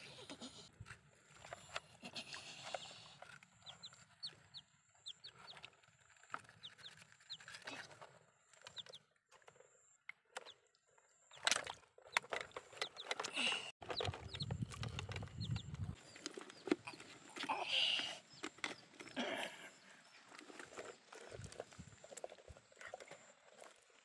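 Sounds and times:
chickens clucking: 12.1 - 23.8.

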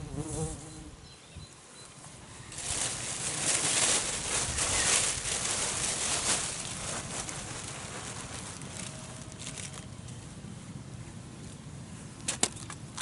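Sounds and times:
plastic bag rustling and crinkling: 2.5 - 9.9.

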